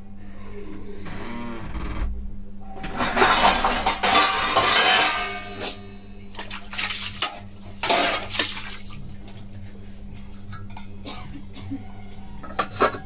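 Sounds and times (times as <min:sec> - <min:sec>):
metal cookware knocking: 0:02.8 - 0:06.5, 0:12.4 - 0:13.0.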